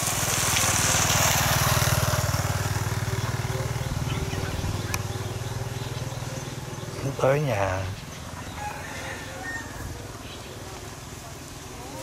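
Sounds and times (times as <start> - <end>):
small engine running: 0.0 - 8.0.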